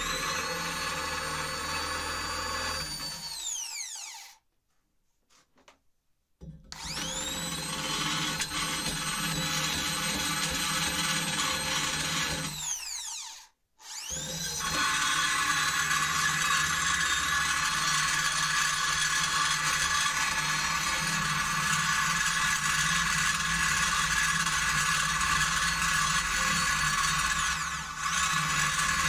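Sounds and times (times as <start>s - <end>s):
die grinder whining on steel: 0.0s - 4.4s, 6.7s - 29.0s.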